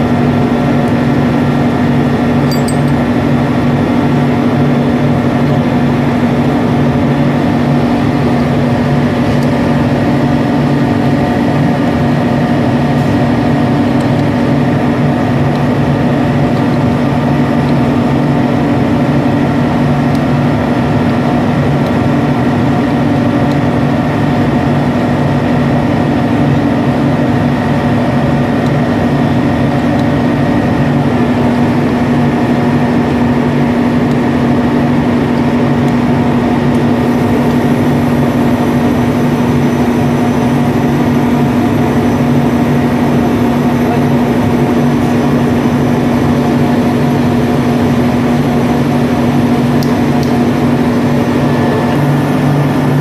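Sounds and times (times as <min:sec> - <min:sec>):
heavy machinery drone: 0:00.0 - 0:53.0.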